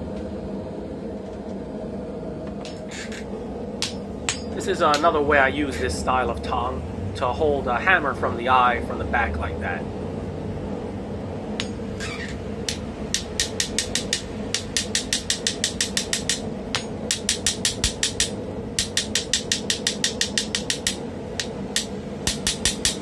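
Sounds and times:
hammer striking steel on anvil: 0:03.8 - 0:05.2, 0:11.6 - 0:11.8, 0:12.7 - 0:23.0.

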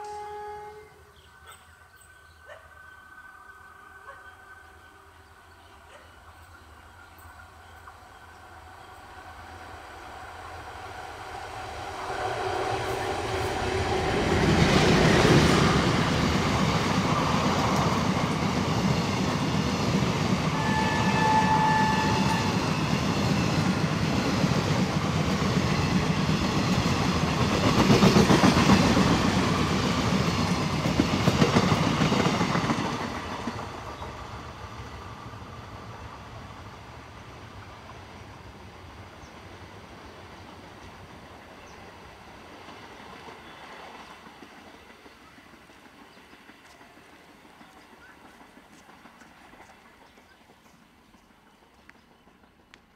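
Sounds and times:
train horn blast: 0:00.0 - 0:01.2, 0:20.4 - 0:22.8
train rumbling past: 0:00.0 - 0:52.9.

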